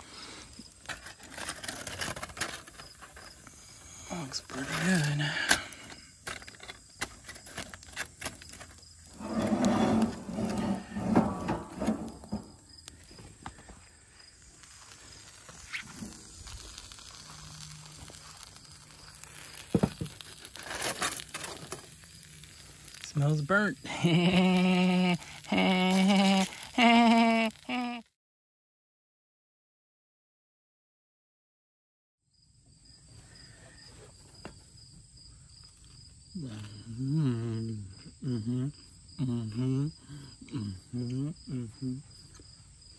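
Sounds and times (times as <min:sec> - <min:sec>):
crickets chirping: 0:00.0 - 0:28.0, 0:32.3 - 0:42.9
aluminium foil rustling: 0:00.2 - 0:28.0
foil crinkling: 0:00.2 - 0:28.0
man humming while eating: 0:23.9 - 0:28.1, 0:36.4 - 0:42.2.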